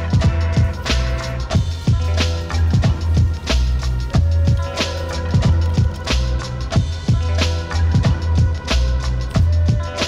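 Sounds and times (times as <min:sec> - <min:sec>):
hip-hop instrumental music: 0:00.0 - 0:10.0.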